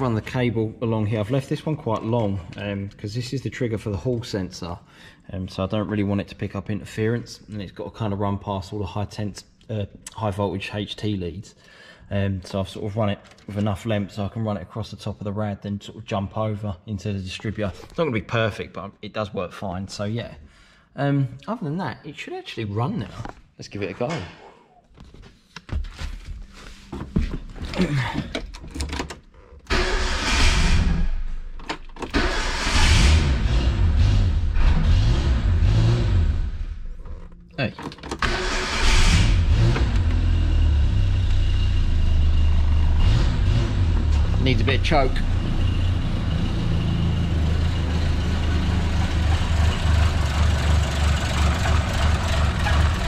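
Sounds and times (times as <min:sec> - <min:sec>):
engine cranking on starter motor: 0:29.7 - 0:31.0, 0:31.8 - 0:35.4, 0:37.9 - 0:40.4
car engine idling unevenly: 0:48.0 - 0:53.0.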